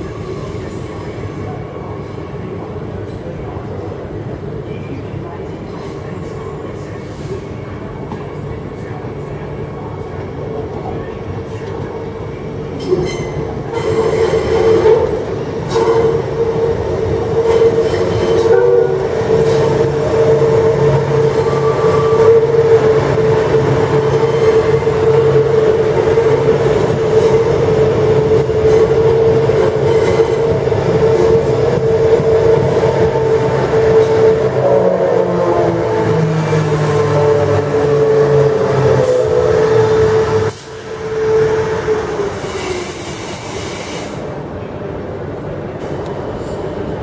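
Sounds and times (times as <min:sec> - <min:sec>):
steady train whine: 0:00.0 - 0:47.0
electric train running past: 0:13.0 - 0:44.4.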